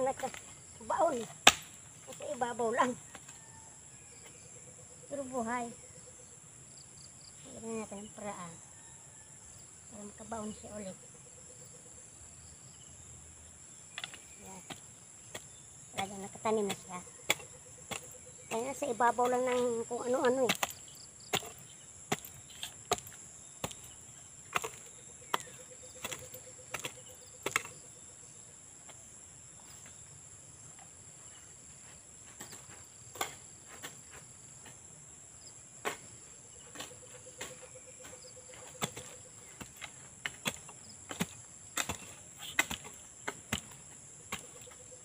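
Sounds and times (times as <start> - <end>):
crickets and insects droning: 0.0 - 45.0
hoe chopping into soil: 1.3 - 1.8, 13.9 - 27.8, 32.2 - 34.9, 35.8 - 37.8, 38.5 - 44.7.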